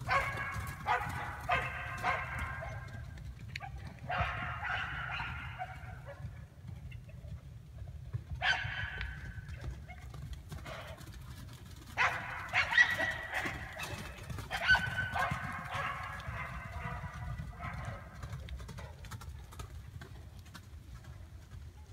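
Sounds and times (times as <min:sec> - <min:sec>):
dog barking and yelping: 0:00.1 - 0:02.8, 0:03.6 - 0:06.2, 0:12.0 - 0:18.0.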